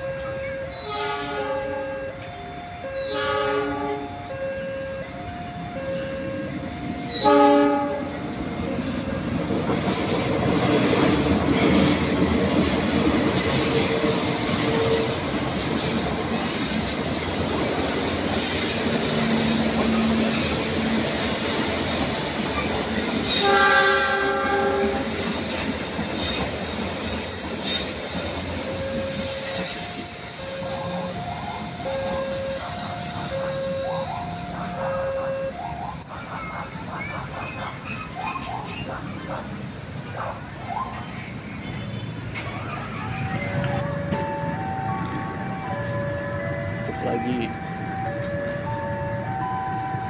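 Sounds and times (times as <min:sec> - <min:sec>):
train wheels rumbling on rails: 0:00.0 - 0:50.0
locomotive horn blast: 0:00.6 - 0:02.2, 0:03.0 - 0:05.2, 0:07.1 - 0:08.2, 0:23.3 - 0:25.2.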